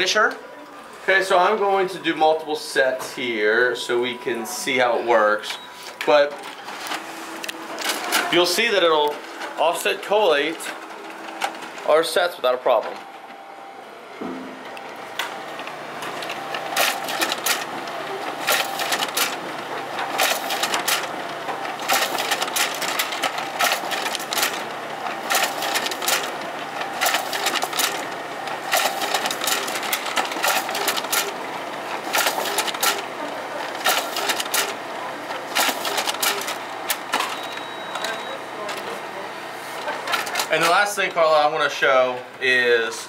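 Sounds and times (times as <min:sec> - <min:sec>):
copier running: 0:00.0 - 0:43.0
sharp clicks of sheets feeding: 0:05.8 - 0:11.9, 0:15.2 - 0:39.0, 0:39.7 - 0:40.9.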